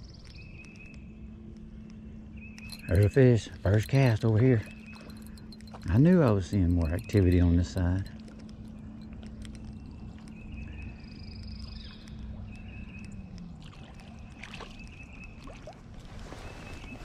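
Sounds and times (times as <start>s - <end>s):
fishing reel whirring: 2.6s - 8.1s
fish splashing water: 11.5s - 17.0s.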